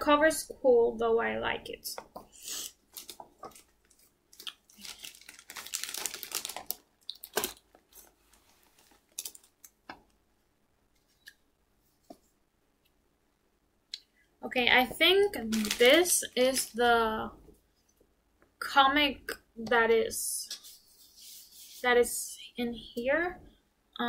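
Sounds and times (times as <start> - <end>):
paper rustling and crinkling: 2.9 - 9.8, 15.4 - 16.8.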